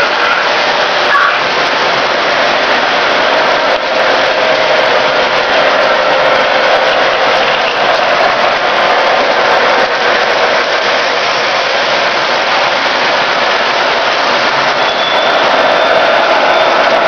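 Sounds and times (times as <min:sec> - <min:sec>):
model trains whirring on track: 0:00.0 - 0:17.0.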